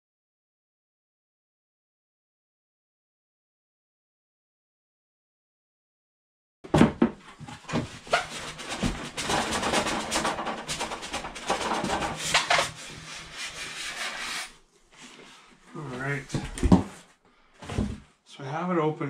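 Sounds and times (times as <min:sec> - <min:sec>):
cardboard scraping against foam: 0:07.6 - 0:17.0.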